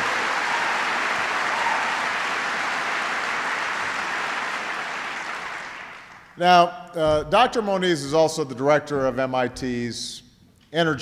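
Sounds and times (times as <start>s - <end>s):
large audience applauding: 0.0s - 6.4s.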